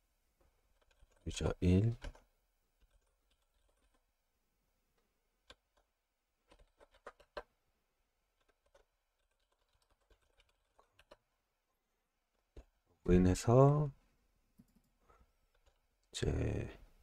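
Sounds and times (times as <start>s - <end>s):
keyboard typing: 0.7s - 4.1s, 5.4s - 7.5s, 8.3s - 11.4s.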